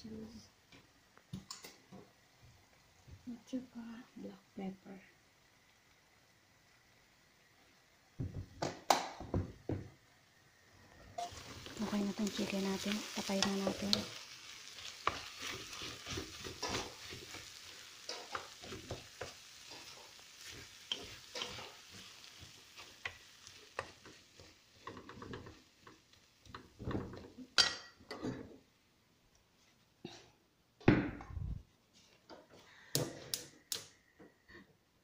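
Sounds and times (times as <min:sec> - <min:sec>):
light sizzle: 0:00.0 - 0:34.6
spatula scraping frying pan: 0:11.2 - 0:26.0.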